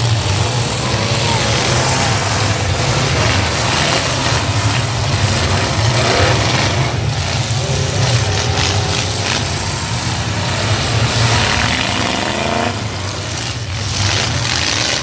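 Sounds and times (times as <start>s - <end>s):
truck engines droning: 0.0s - 15.0s.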